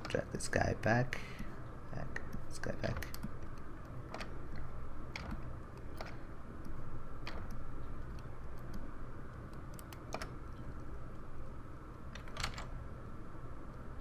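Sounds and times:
low steady hum: 0.0 - 14.0
keyboard and mouse clicks: 2.2 - 11.2, 11.9 - 12.8.

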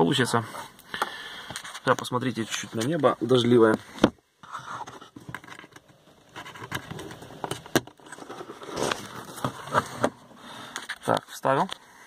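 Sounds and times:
plastic parts clicking and scraping: 4.0 - 11.8.

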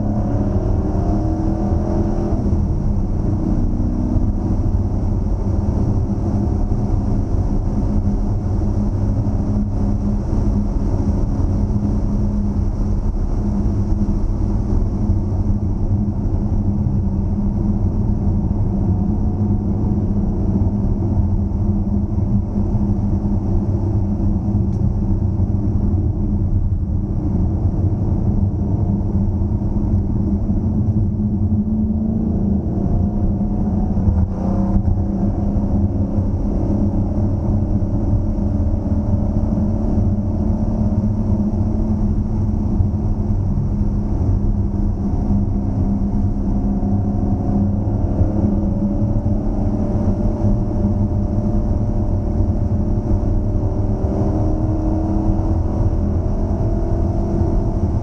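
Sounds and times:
car engine rumbling: 0.0 - 58.0.

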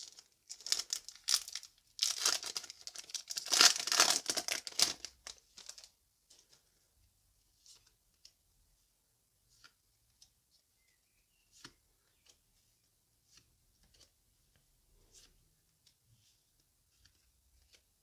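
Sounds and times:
foil wrapper crinkling and tearing: 0.0 - 5.9.

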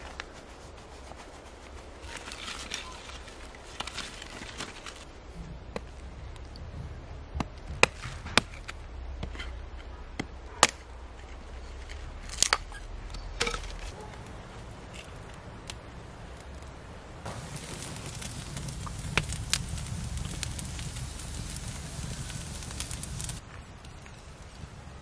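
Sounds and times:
hatchet chopping firewood: 7.3 - 9.5, 10.1 - 10.9.

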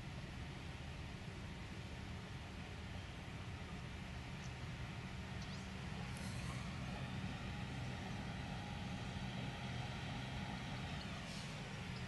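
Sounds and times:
faint hiss: 0.2 - 12.0
tractor diesel engine running: 4.8 - 12.0.

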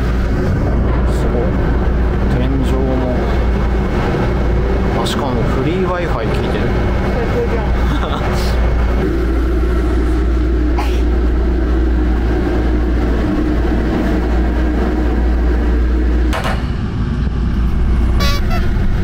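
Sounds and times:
vehicle engine humming: 0.0 - 19.0
sharp knock: 16.3 - 16.7.

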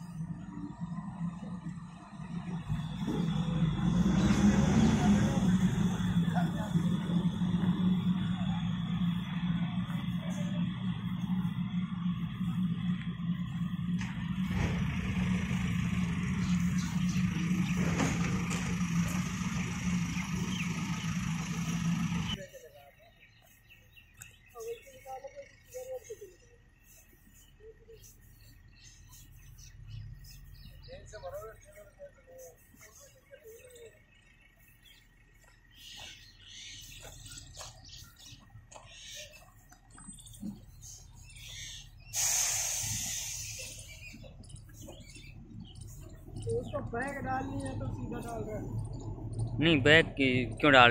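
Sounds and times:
birds chirping: 0.0 - 50.9
diesel engine running: 0.0 - 50.9
loud hiss: 42.1 - 44.1.

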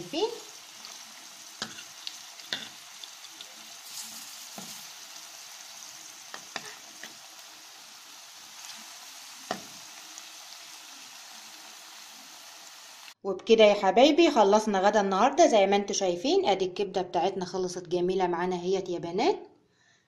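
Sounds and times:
patties frying in oil: 0.0 - 13.2.

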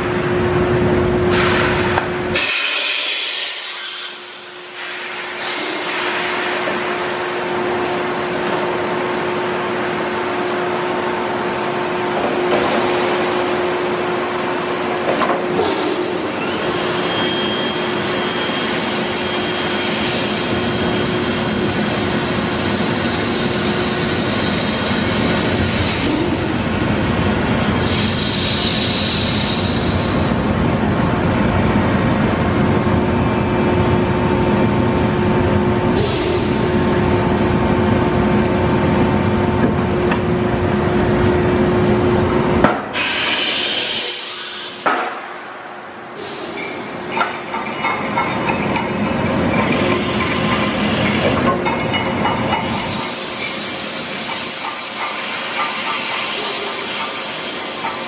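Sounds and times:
high squeal: 16.7 - 21.2.

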